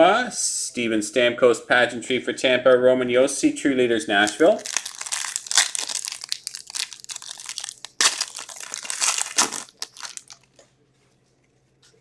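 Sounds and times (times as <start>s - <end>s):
foil wrapper crinkling and tearing: 4.2s - 10.5s.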